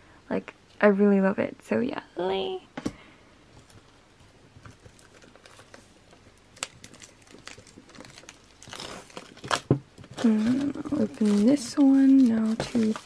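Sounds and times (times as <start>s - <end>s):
paper rustling on desk: 6.6s - 13.0s.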